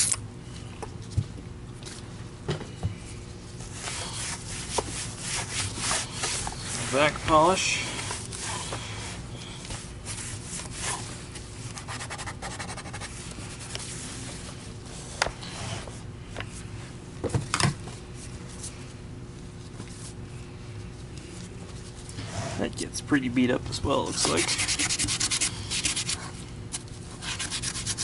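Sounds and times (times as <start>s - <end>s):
cloth wiping plastic: 3.6s - 9.2s, 24.2s - 26.3s.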